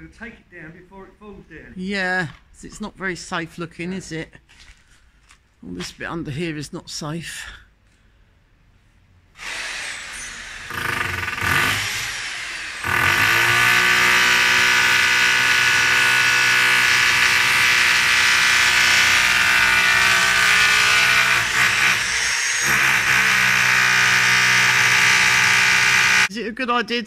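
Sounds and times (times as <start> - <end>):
electric drill boring into concrete: 9.4 - 26.3.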